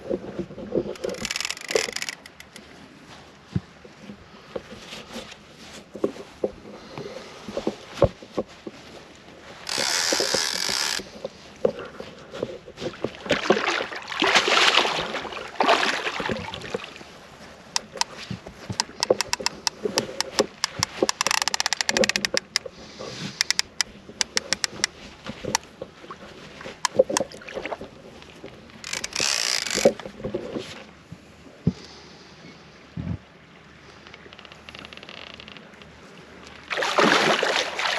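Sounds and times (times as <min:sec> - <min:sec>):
water swishing: 0:00.0 - 0:31.4, 0:33.5 - 0:37.9
fishing reel clicking: 0:01.0 - 0:02.6, 0:09.7 - 0:11.0, 0:18.8 - 0:22.6, 0:23.4 - 0:24.9, 0:28.8 - 0:30.0.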